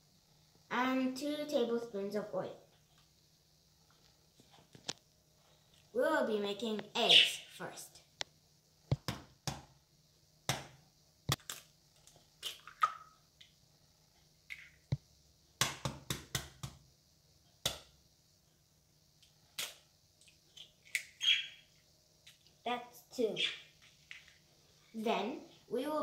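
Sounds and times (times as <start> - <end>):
eggs cracking against bowl: 11.3 - 13.2.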